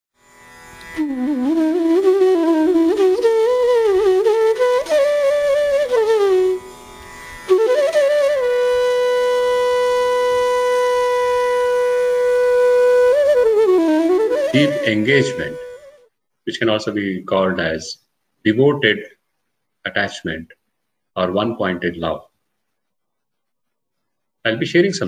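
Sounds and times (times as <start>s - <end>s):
ornamented melodic line: 7.5s - 15.9s.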